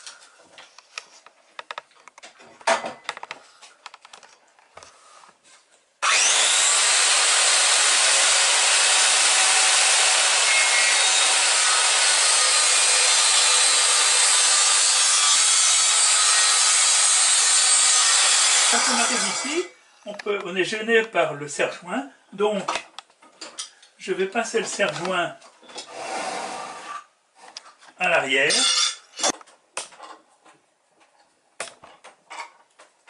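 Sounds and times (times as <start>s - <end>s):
circular saw cutting wood: 6.0s - 19.7s.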